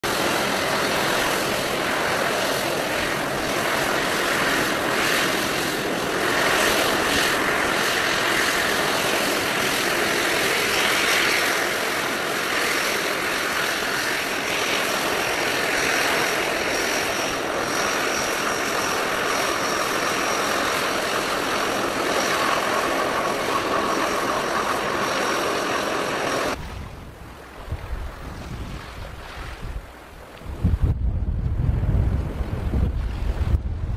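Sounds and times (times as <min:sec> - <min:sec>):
turboprop engines running: 0:00.0 - 0:28.2
faint high whine: 0:00.0 - 0:33.9
wind rumble on microphone: 0:26.5 - 0:33.9.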